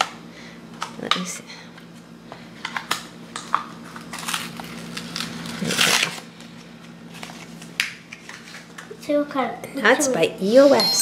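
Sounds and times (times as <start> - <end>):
paper rustling and crinkling: 3.8 - 8.9.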